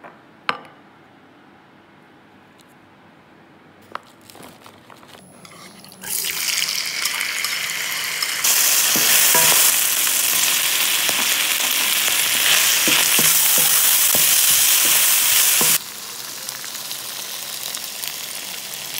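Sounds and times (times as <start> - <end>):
utensil scraping a pan: 4.3 - 6.2, 8.4 - 9.8
food sizzling in hot oil: 5.4 - 18.9.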